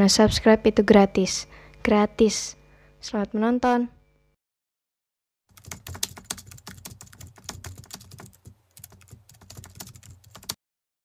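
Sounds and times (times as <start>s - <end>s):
keyboard typing clicks: 5.5s - 10.6s.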